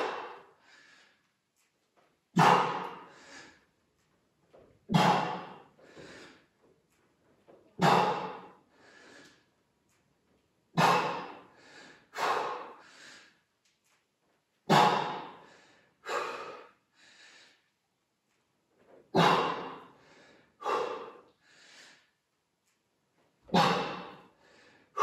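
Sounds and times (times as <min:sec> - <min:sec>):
person breathing hard: 0:00.0 - 0:01.3, 0:02.4 - 0:03.7, 0:04.9 - 0:06.5, 0:07.8 - 0:09.5, 0:10.8 - 0:13.5, 0:14.7 - 0:17.8, 0:19.1 - 0:22.2, 0:23.5 - 0:25.0.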